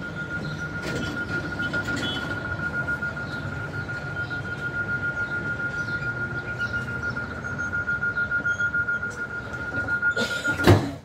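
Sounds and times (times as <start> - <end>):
high-pitched electronic tone: 0.0 - 10.8
loud clunk: 10.3 - 11.0.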